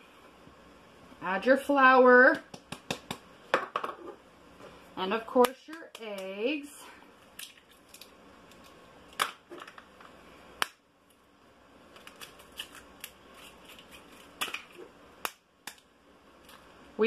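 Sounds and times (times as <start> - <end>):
eggs cracking: 7.3 - 10.8, 11.9 - 16.7.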